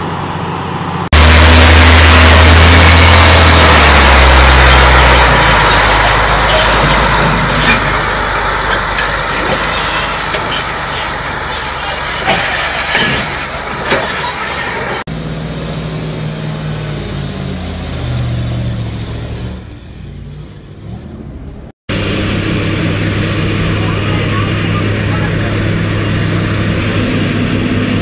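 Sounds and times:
heavy truck driving past: 0.0s - 13.8s
truck engine labouring uphill: 0.0s - 28.0s.

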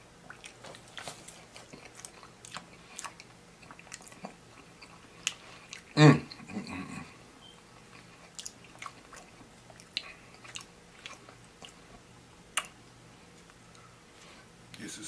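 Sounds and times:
wet chewing mouth clicks: 0.2s - 6.4s, 7.8s - 11.8s.

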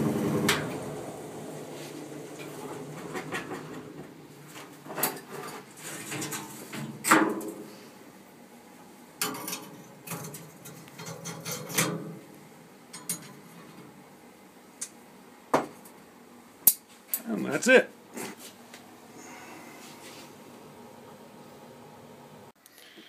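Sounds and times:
metal clanks and knocks: 2.2s - 7.6s.

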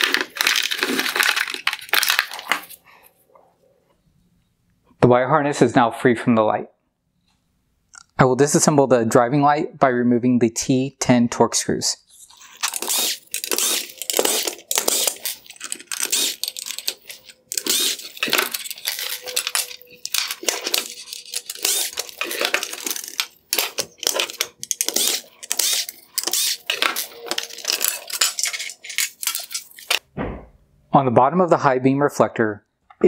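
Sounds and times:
plastic parts clattering on workbench: 0.0s - 2.8s, 12.4s - 30.0s.

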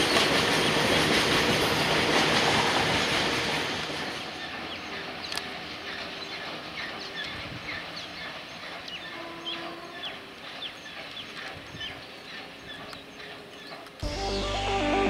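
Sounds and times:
freight train rumble: 0.0s - 15.0s
birds chirping: 4.4s - 14.1s.

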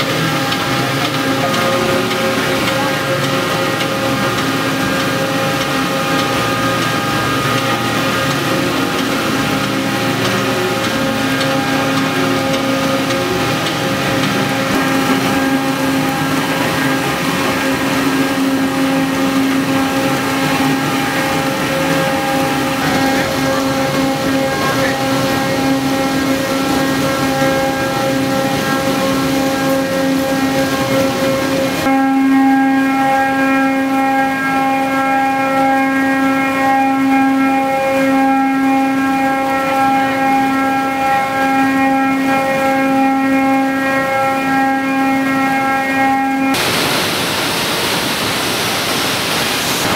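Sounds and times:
conveyors and elevators running: 0.0s - 49.9s
motor hum: 0.0s - 49.9s
machinery hiss: 46.6s - 49.9s.

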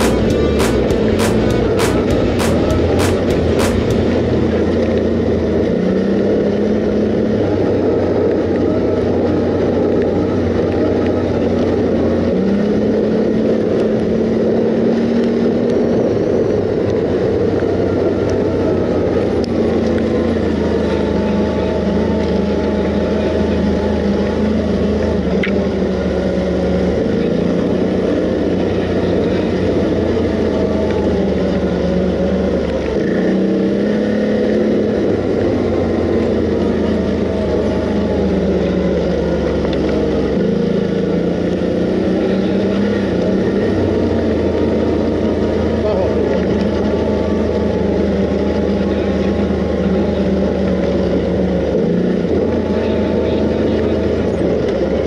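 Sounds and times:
riding noise rush: 0.0s - 5.8s
quad bike engine running: 0.0s - 55.0s.

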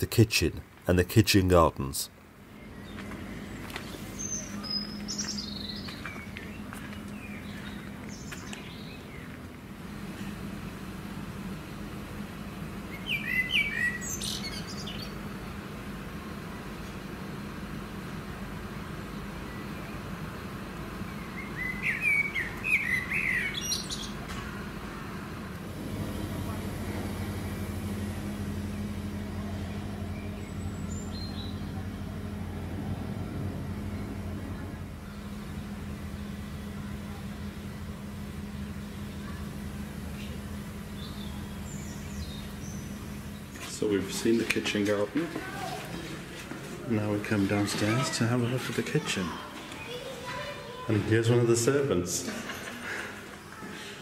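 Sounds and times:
distant engine drone: 0.0s - 54.0s
steady low hum: 0.0s - 54.0s
birds chirping and singing: 2.5s - 9.4s, 12.9s - 15.3s, 21.0s - 25.0s, 27.8s - 36.5s, 40.2s - 43.7s.

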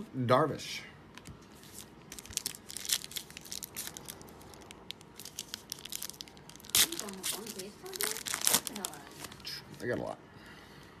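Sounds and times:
foil wrapper tearing and crinkling: 1.6s - 9.5s.

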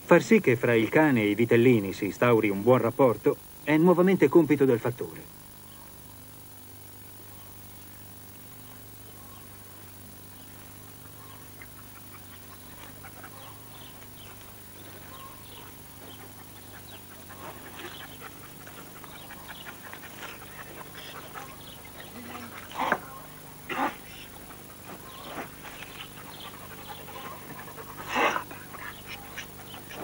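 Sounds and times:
young dog yelping: 11.0s - 30.0s.

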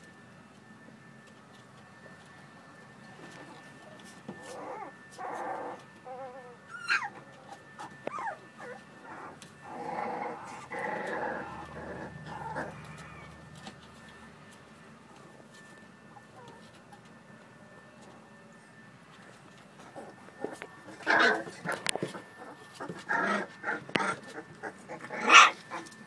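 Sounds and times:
puppies growling and whining: 3.2s - 14.1s, 15.4s - 17.1s, 19.2s - 26.0s
puppy yelping: 4.4s - 13.4s, 20.0s - 26.0s.

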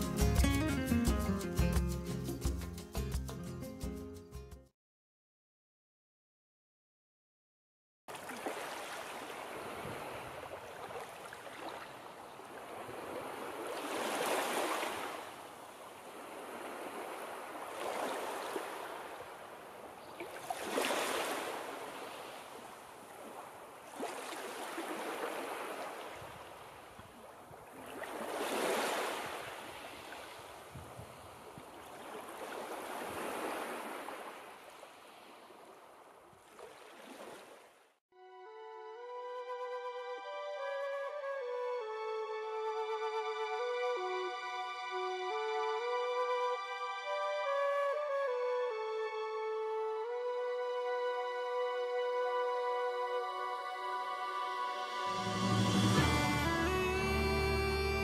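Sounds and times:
sea waves breaking on beach: 8.1s - 37.8s.

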